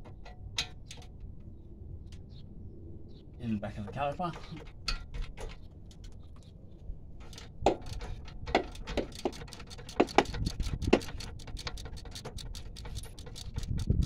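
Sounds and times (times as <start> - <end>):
ratchet clicking: 7.2 - 14.0.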